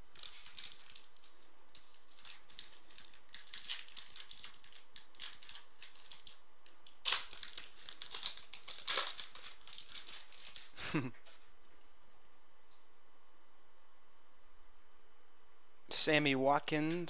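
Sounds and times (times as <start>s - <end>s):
foil wrapper crinkling: 0.0s - 10.8s.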